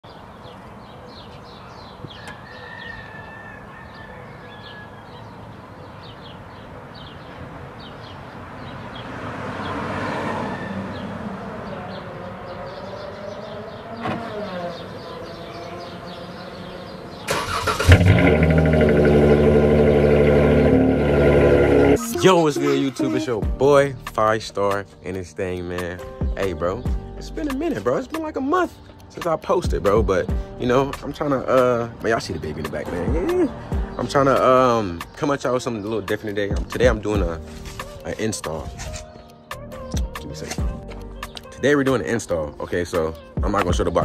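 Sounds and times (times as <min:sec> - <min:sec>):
car engine starting and running: 0:11.4 - 0:22.0.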